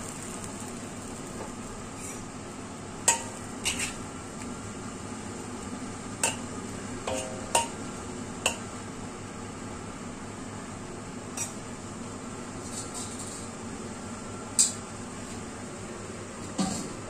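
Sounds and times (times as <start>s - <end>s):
frying oil sizzling: 0.0s - 2.2s, 2.9s - 9.5s
metal spatula clinking against wok: 7.1s - 7.8s.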